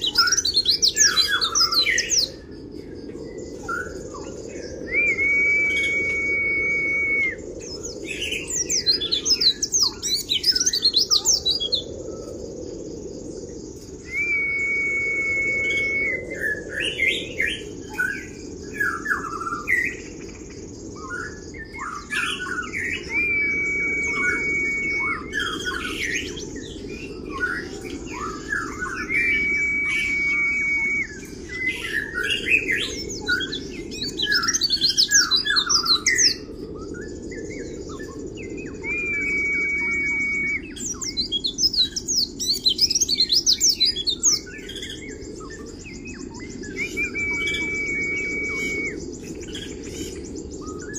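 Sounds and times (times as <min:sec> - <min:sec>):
bird whistling: 0:00.0 - 0:02.3, 0:04.8 - 0:11.9, 0:14.0 - 0:17.3, 0:21.9 - 0:36.4, 0:38.0 - 0:49.1
bird chirping and twittering: 0:00.0 - 0:50.9.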